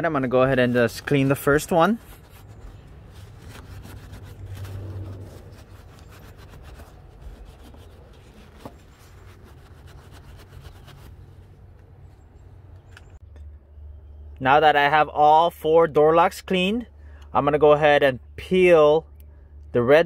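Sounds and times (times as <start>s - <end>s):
low steady hum: 0.0s - 20.0s
paper towel rubbing metal: 0.4s - 11.4s.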